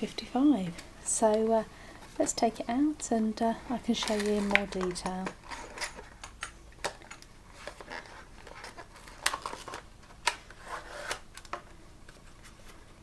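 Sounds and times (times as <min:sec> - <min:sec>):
plastic blister pack crinkling: 0:03.8 - 0:12.2.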